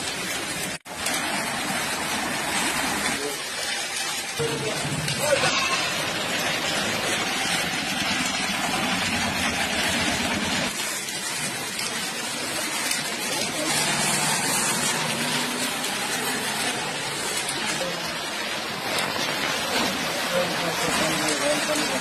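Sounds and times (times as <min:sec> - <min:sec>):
water splashing around wheels: 0:00.0 - 0:22.0.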